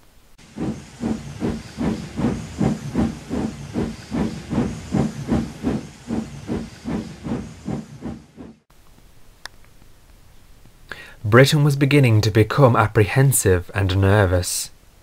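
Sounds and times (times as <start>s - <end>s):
steam locomotive chuffing: 0.4s - 8.6s.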